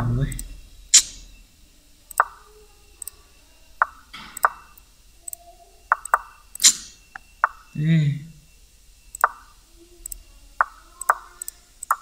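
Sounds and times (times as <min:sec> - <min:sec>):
faint mouse clicks: 0:02.1 - 0:02.4, 0:03.8 - 0:06.8, 0:09.1 - 0:12.0.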